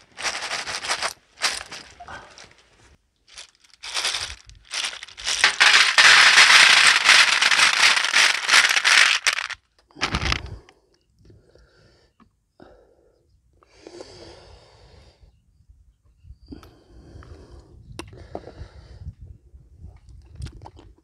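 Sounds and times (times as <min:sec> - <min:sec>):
faint handling sounds: 0:00.0 - 0:10.4
snail shells clattering on tray: 0:03.3 - 0:10.4.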